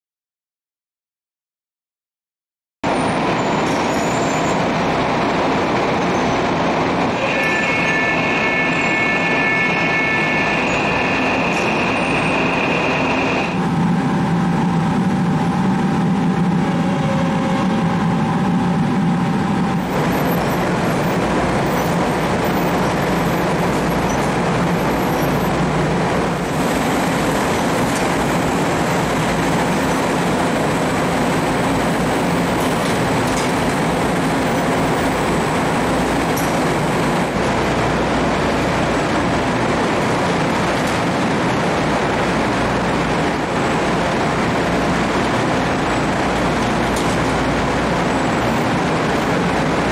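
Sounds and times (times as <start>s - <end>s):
bakery machinery running: 2.9s - 49.9s.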